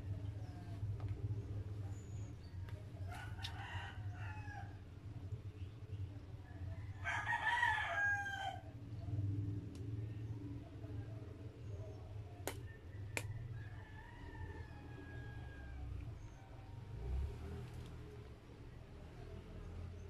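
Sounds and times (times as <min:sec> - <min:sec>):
rooster crowing: 0:03.1 - 0:04.8, 0:06.7 - 0:08.7, 0:13.0 - 0:16.0.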